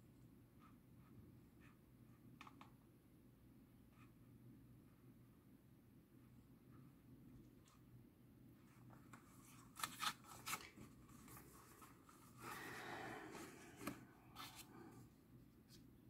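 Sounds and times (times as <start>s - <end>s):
paper rustling: 8.9s - 12.6s.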